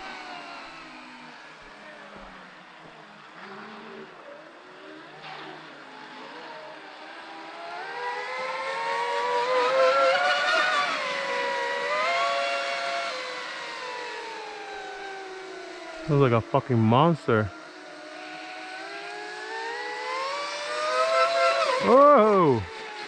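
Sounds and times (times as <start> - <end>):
rc speedboat motor whine: 0.0 - 23.0.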